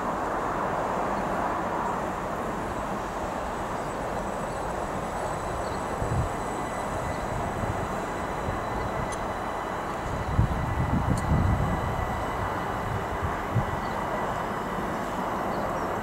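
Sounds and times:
train rumbling and hissing on rails: 0.0s - 16.0s.

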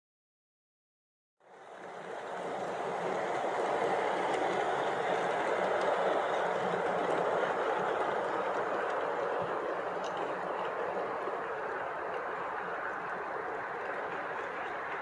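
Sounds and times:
model train rolling rumble: 1.4s - 15.0s
faint light ticks: 8.0s - 15.0s.

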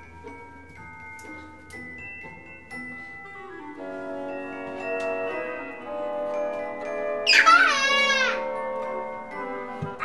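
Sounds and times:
background music with sustained tones: 0.0s - 10.0s
toddler crying: 7.2s - 8.5s.

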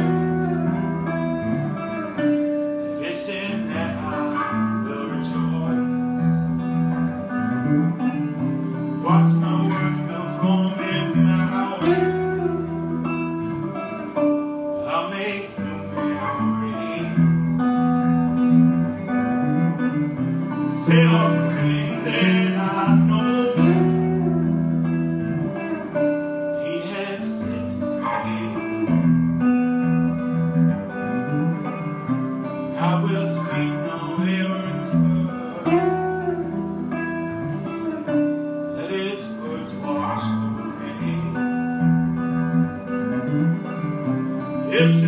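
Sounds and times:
man singing into microphone: 0.0s - 0.7s, 2.8s - 6.9s, 8.9s - 12.8s, 14.8s - 18.2s, 20.5s - 24.4s, 26.5s - 29.3s, 32.5s - 36.5s, 38.6s - 42.0s, 44.5s - 45.0s
guitar chords: 0.0s - 45.0s.

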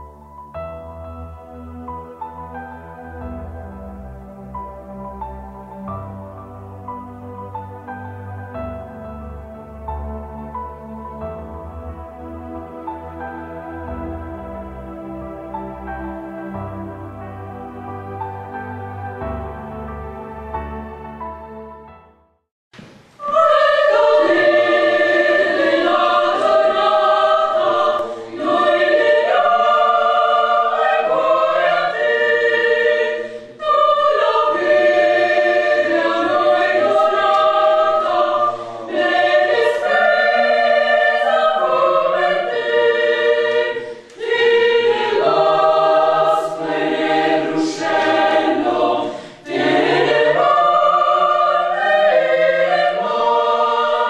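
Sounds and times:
choir singing: 23.2s - 54.0s.

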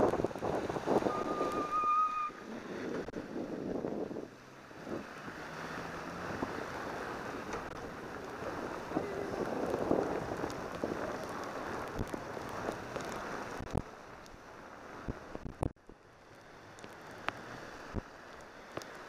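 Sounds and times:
raindrops tapping camera: 0.0s - 1.7s, 4.7s - 19.0s
bicycle riding on wet street: 0.0s - 19.0s.

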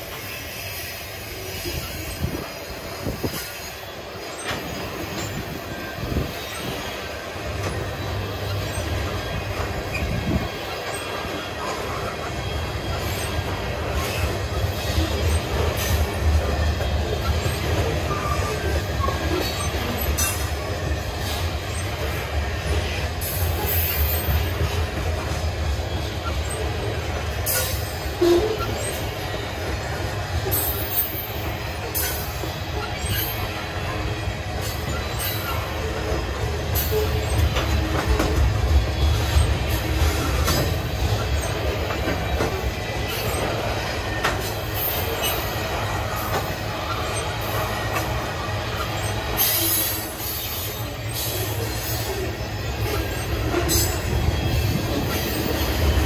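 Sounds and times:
train cars clanking: 0.0s - 56.0s
train wheels rumbling: 0.0s - 56.0s
wheel squeal: 0.0s - 56.0s.

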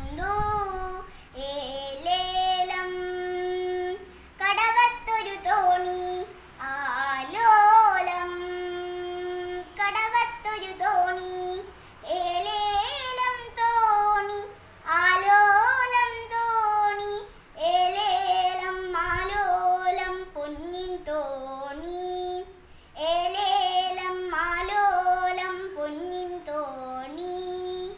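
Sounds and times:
girl singing unaccompanied: 0.0s - 27.9s
singer breathing: 1.0s - 1.4s, 4.0s - 4.4s, 11.7s - 12.0s, 17.3s - 17.6s, 22.6s - 23.0s.

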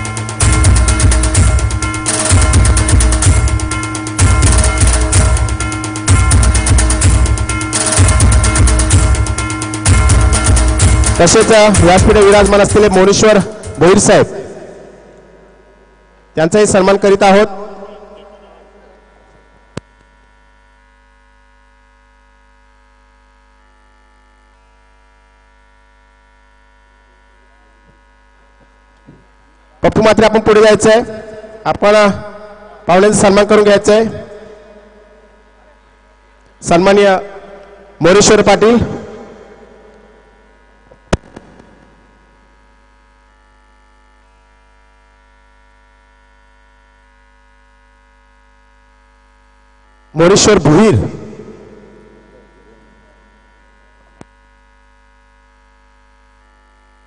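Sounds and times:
electrical mains hum: 0.0s - 57.0s
sharp loud click: 41.1s - 42.0s.

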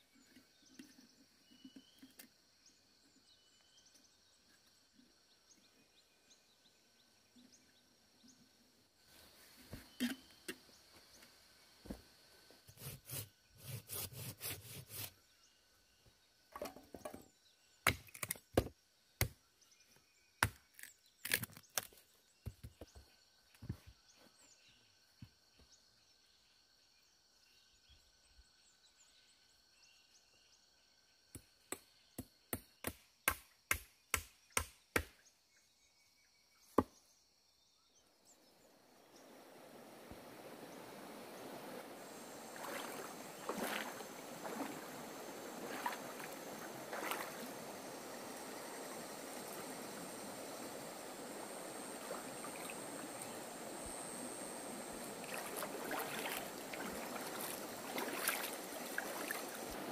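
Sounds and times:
hatchet chopping wood: 20.4s - 21.5s, 31.4s - 35.2s.

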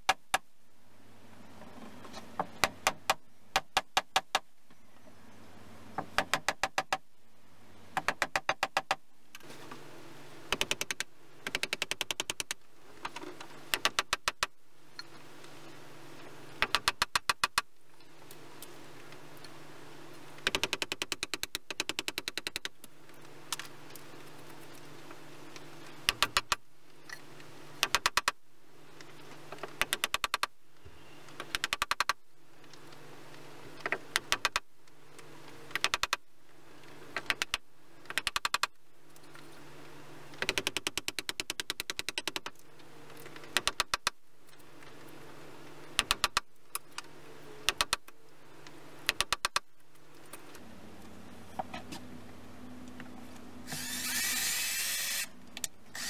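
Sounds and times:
low steady hum: 0.0s - 8.3s, 9.0s - 17.0s, 17.6s - 20.5s, 42.5s - 56.0s
steady hiss-like noise: 0.0s - 56.0s.

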